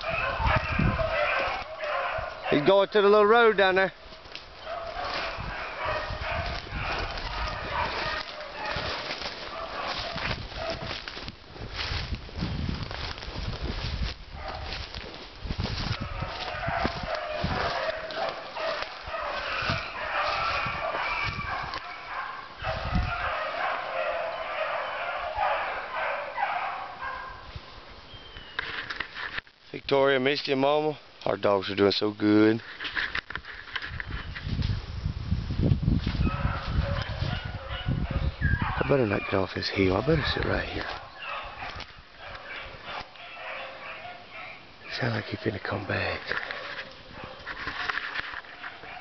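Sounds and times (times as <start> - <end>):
dogs baying: 0.0 - 3.4, 4.1 - 11.2, 14.3 - 14.9, 15.8 - 27.5, 36.2 - 49.0
footsteps through brush and leaves: 0.0 - 30.6, 31.2 - 49.0.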